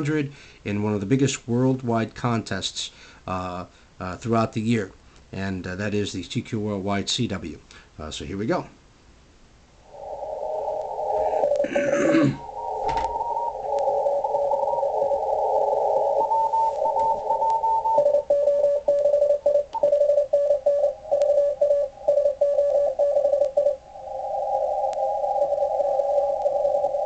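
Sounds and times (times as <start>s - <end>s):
radio band hiss: 10.0s - 18.0s
morse code tones: 11.1s - 23.8s.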